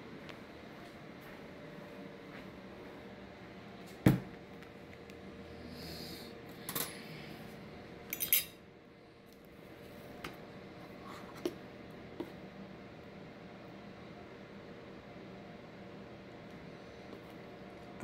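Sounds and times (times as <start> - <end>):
low steady hum: 0.0 - 18.0
cutlery clinking on ceramic plate: 8.2 - 8.6.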